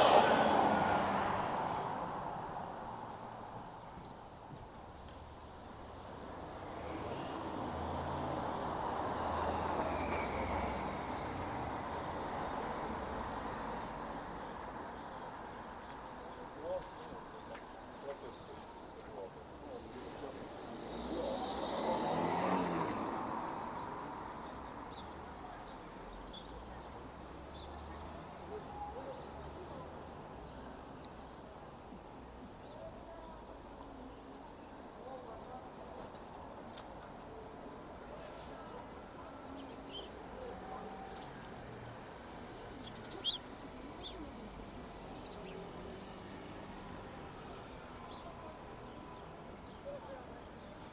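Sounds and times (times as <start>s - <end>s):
car passing by: 0.0s - 3.8s, 6.3s - 14.8s, 20.2s - 26.3s
city traffic hum: 0.0s - 50.9s
street noise: 0.0s - 50.9s.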